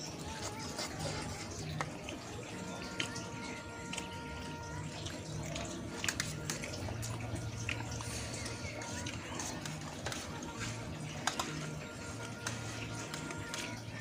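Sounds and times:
noodles being slurped and chewed: 0.0 - 14.0.

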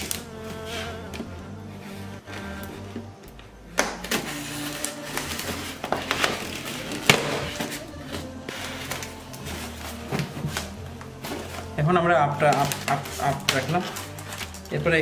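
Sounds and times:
knife cutting packing tape: 3.8 - 11.7, 12.4 - 14.8.

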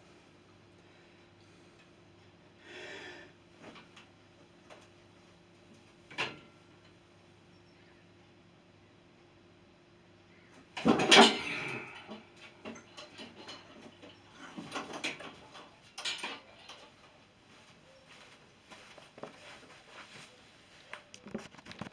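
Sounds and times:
metal weight plates clanking: 10.8 - 16.9
light metal clinks and knocks: 11.0 - 17.2.

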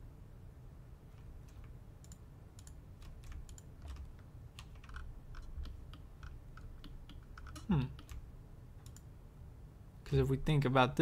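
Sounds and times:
computer keyboard and mouse clicks: 1.4 - 8.2, 8.8 - 9.1.

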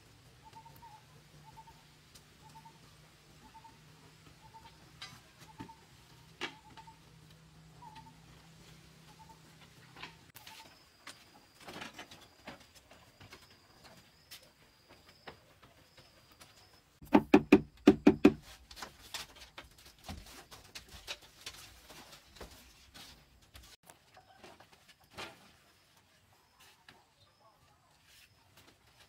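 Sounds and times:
loud wooden knocks: 17.0 - 18.4.

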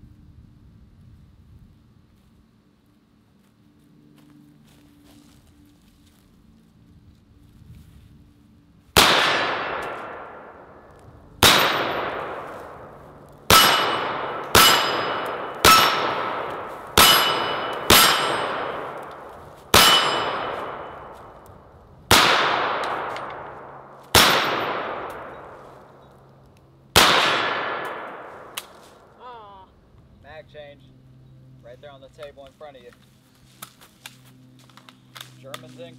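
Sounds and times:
rifle shots echoing: 9.0 - 21.5, 22.1 - 26.0, 26.9 - 29.1.

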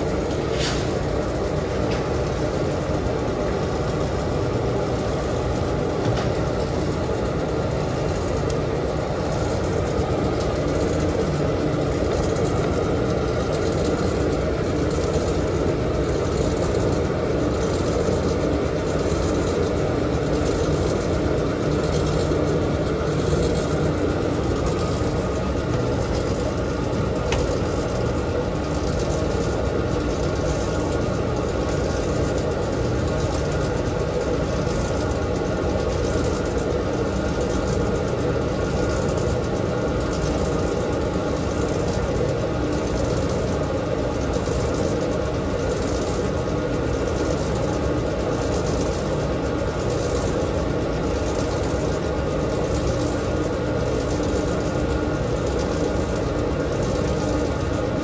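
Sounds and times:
washing machine drum spinning: 0.0 - 58.0.

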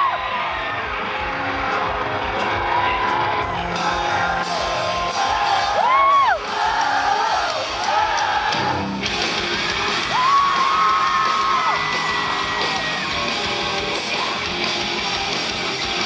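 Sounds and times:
fans screaming whoops: 0.0 - 8.9, 9.6 - 13.4
rock band playing live: 0.0 - 16.0.

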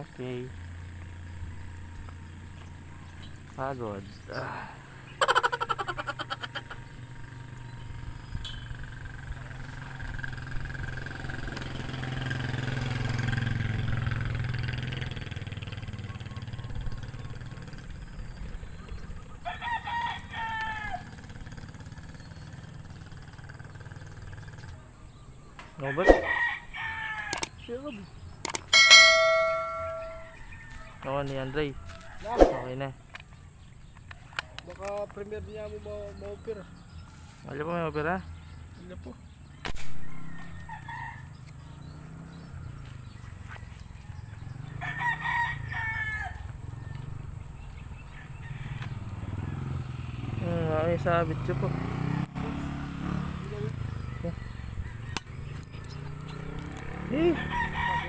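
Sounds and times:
small engine running: 6.1 - 19.4, 20.5 - 25.0, 46.4 - 58.0
rooster crowing: 19.4 - 21.3, 25.8 - 27.5, 28.8 - 32.7, 39.9 - 41.8, 43.4 - 47.2, 48.0 - 49.8, 54.1 - 55.5, 57.1 - 58.0
spear gun firing crack: 39.6 - 40.0.

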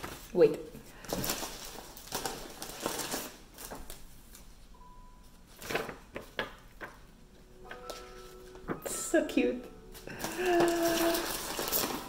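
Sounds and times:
packaging crinkling and rustling: 1.0 - 4.7, 5.5 - 7.0, 9.9 - 12.0.

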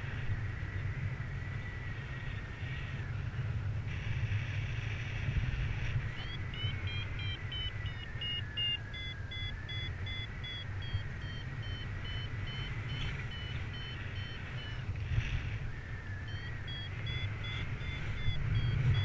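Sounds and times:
wind rushing on microphone: 0.0 - 8.4, 9.6 - 19.0
variometer short beeps: 6.1 - 14.9, 15.8 - 19.0.

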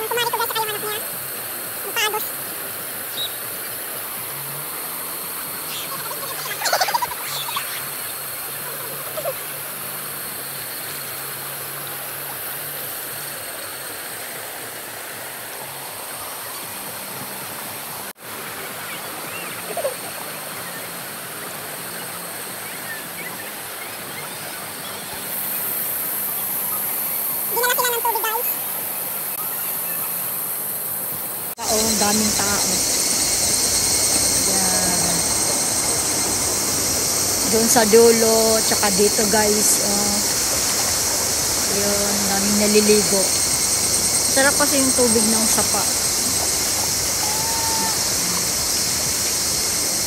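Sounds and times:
river water rushing over stones: 0.0 - 50.0
distant shouts: 44.3 - 48.6.

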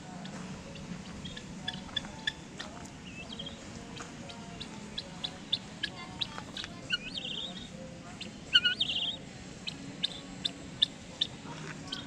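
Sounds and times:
birds chirping: 0.0 - 12.0
bird warbling calls: 0.7 - 3.6, 4.3 - 12.0.

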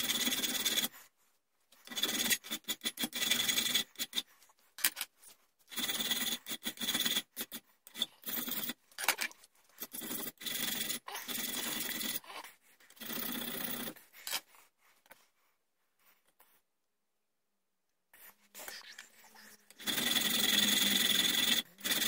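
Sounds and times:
file rasping on steel: 5.8 - 8.8.

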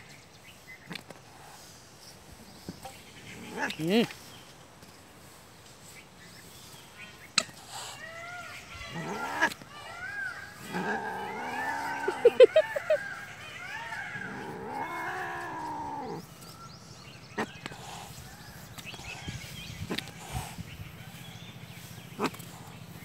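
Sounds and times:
cat growling and yowling: 8.9 - 9.5, 10.6 - 12.4, 14.2 - 16.2.

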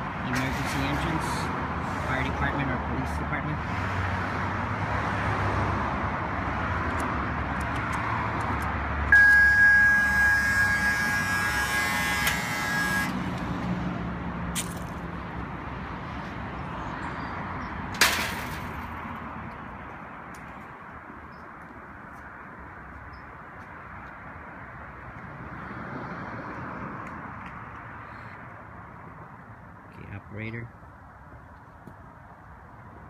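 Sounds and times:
street traffic: 0.0 - 33.0
electric lock buzzing: 11.0 - 13.2
metal gate clanking shut: 18.0 - 18.8.

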